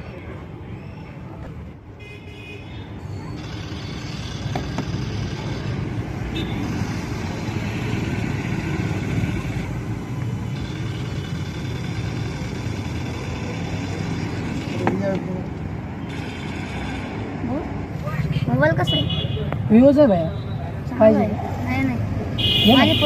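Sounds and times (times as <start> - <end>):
engine running: 3.4 - 17.5.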